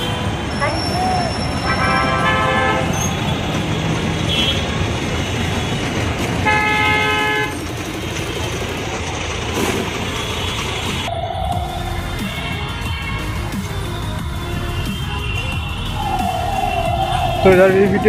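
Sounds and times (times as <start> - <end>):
vehicle horn honking: 0.0 - 3.4, 4.2 - 4.8, 6.4 - 7.6, 14.7 - 17.9
busy road traffic: 0.0 - 18.0.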